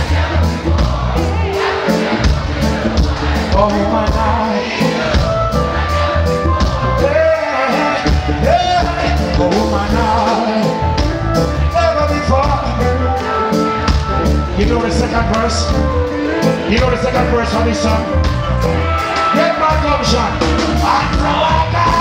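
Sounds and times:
heavy bass line: 0:00.0 - 0:22.0
keyboards: 0:00.0 - 0:22.0
steady drum beat: 0:00.0 - 0:22.0
man singing: 0:03.5 - 0:04.9, 0:06.9 - 0:11.0, 0:11.6 - 0:13.1, 0:14.6 - 0:18.1, 0:19.3 - 0:22.0.

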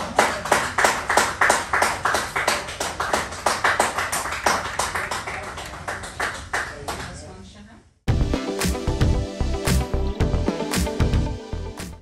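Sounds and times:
people clapping: 0:00.0 - 0:07.3.

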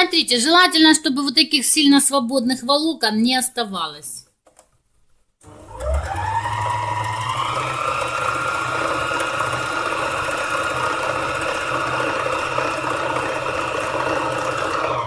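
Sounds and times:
needle-felting machine motor whine: 0:05.5 - 0:15.0.

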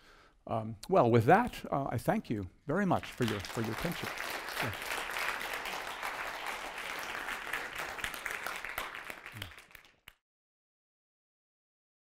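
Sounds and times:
audience applauding: 0:02.9 - 0:10.2.

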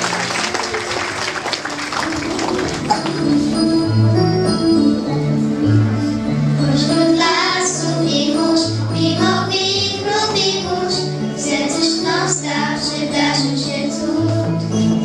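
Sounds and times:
instrumental accompaniment with bass: 0:00.0 - 0:15.0
children singing: 0:06.6 - 0:15.0.

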